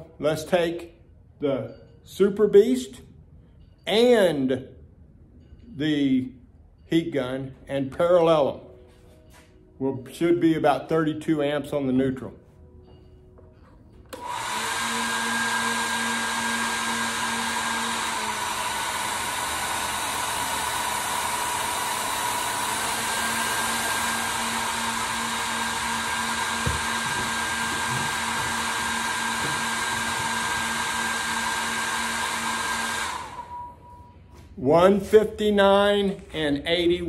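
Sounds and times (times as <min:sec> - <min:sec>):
heat gun fan hiss and whine: 0:14.0 - 0:36.9
heat gun switch: 0:14.1 - 0:33.8.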